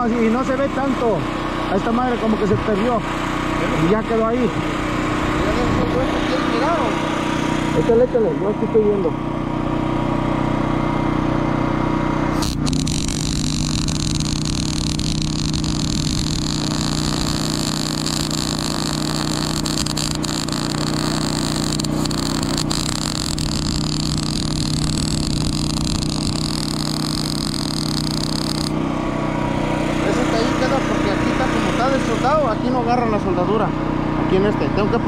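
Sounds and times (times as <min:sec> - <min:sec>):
engine hum: 0:00.0 - 0:35.0
welding arc hissing and crackling: 0:12.4 - 0:28.8
welding pops: 0:12.4 - 0:28.8.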